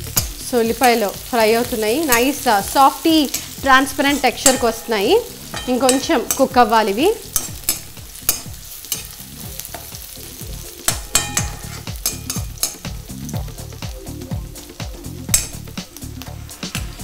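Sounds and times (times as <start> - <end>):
onions sizzling in oil: 0.0 - 17.0
ladle knocking on pan: 4.4 - 6.6, 10.9 - 13.0, 15.3 - 15.7
ladle scraping a wok: 10.9 - 13.0.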